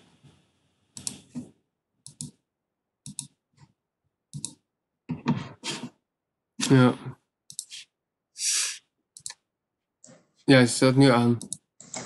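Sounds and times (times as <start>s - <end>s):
computer mouse clicks: 1.0s - 1.3s, 2.0s - 2.4s, 3.0s - 3.4s, 4.3s - 4.6s, 7.5s - 7.8s, 9.1s - 9.4s, 11.4s - 12.0s.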